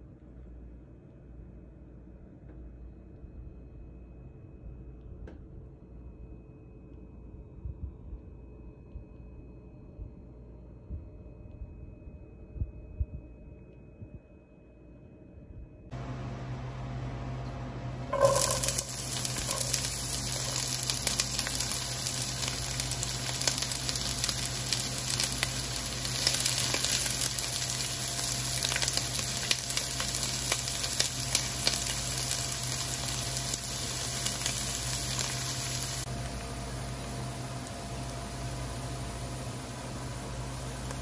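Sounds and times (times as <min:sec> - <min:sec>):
onions sizzling in hot oil: 0:18.1 - 0:36.1.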